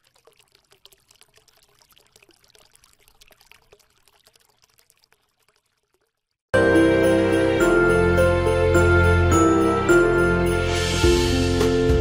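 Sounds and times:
water pattering ticks: 0.0s - 6.5s.

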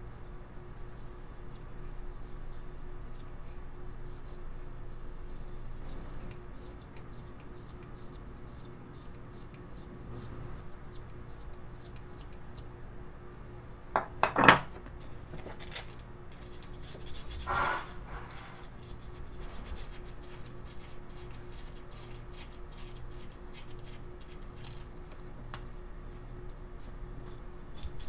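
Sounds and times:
sandpaper rubbing on wood: 16.9s - 24.4s.

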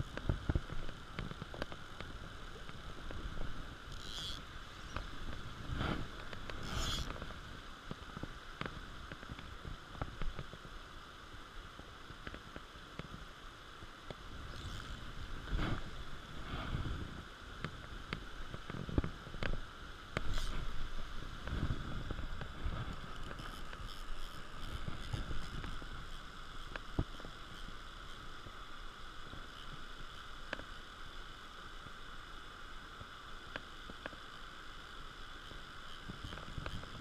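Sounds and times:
water rushing over weir: 0.0s - 37.0s
faint clicks: 29.4s - 30.7s.

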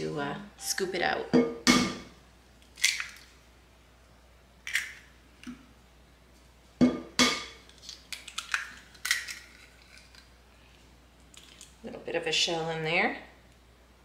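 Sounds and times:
eggs cracking on a ceramic bowl: 7.2s - 10.3s.

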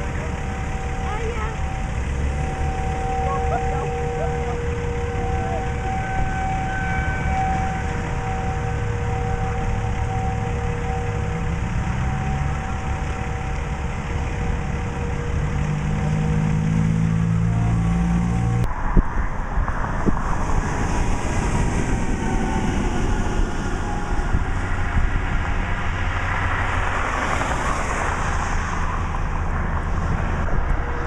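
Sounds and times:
diesel truck engine idling: 0.0s - 18.4s
road and wind noise: 0.0s - 31.0s.

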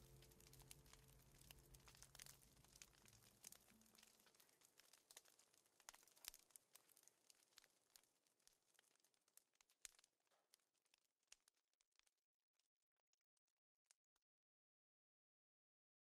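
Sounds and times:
faint crackles: 0.0s - 12.2s.

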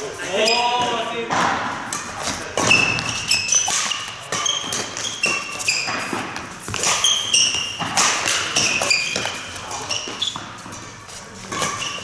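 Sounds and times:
shoe squeaks on court floor: 0.3s - 1.0s, 2.2s - 12.0s
racket striking shuttlecock: 0.8s - 10.8s.

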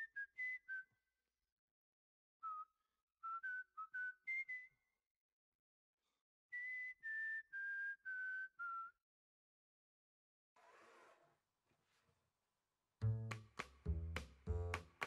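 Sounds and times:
person whistling a tune: 0.0s - 1.0s, 2.4s - 4.8s, 6.6s - 9.0s.

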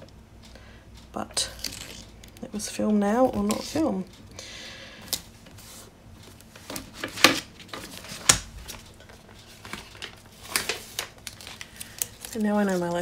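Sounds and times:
paper rustling: 5.4s - 13.0s.

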